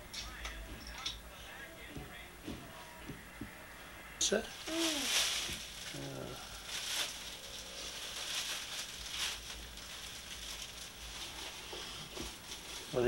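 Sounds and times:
tape hiss: 0:00.0 - 0:13.0
low voice murmur: 0:05.9 - 0:06.6.

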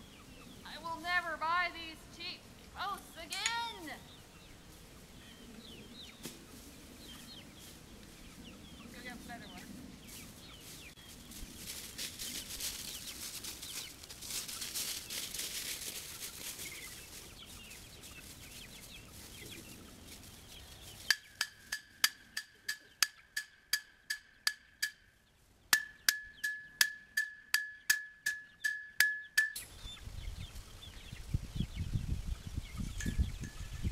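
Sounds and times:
outdoor background noise: 0:00.0 - 0:33.9
chickens clucking: 0:02.5 - 0:26.8, 0:29.3 - 0:33.9.

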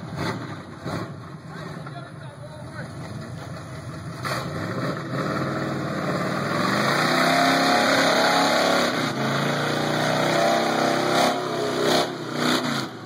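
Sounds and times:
tires spinning in mud: 0:03.9 - 0:13.0
pickup engine revving hard: 0:04.2 - 0:13.0.

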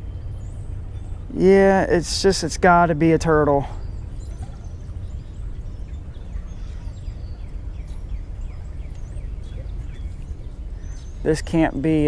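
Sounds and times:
low outdoor rumble: 0:00.0 - 0:12.0
faint bird chirps: 0:03.5 - 0:12.0.

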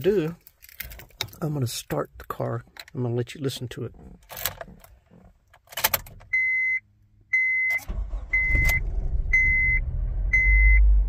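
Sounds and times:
car engine cranking and idling: 0:00.0 - 0:11.0
dashboard warning chime beeping: 0:06.3 - 0:10.9.

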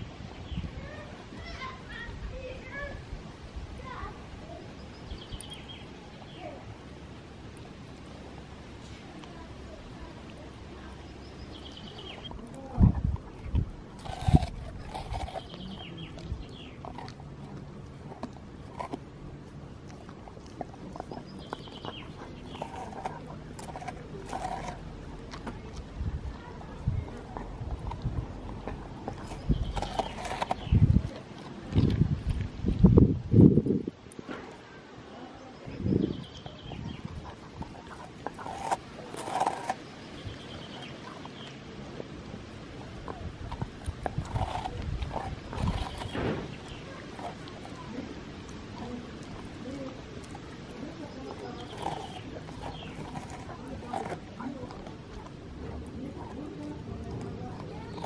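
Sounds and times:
dog gnawing and licking: 0:05.0 - 0:34.6, 0:36.1 - 0:58.0
crunchy bites: 0:11.3 - 0:33.0, 0:36.2 - 0:41.6, 0:42.4 - 0:58.0.

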